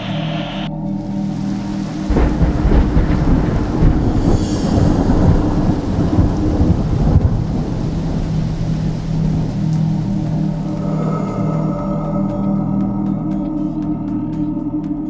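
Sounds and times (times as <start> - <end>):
thunder crack and rumble: 0.0 - 11.2
rain hiss: 0.0 - 12.5.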